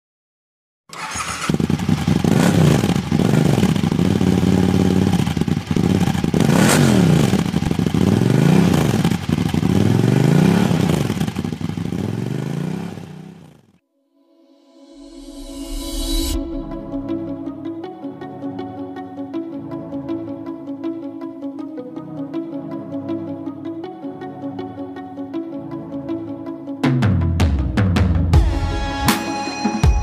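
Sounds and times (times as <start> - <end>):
motorcycle engine revving: 0.9 - 13.8.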